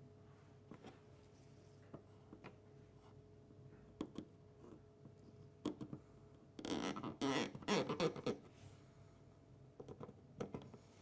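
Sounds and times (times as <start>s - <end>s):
faint steady hum: 0.0s - 11.0s
pencil and ruler tapping plastic: 4.0s - 4.8s, 5.6s - 6.0s, 9.8s - 10.8s.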